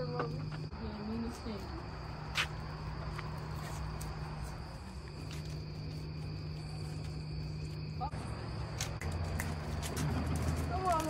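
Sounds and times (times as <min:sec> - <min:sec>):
crickets chirping: 0:00.0 - 0:11.0.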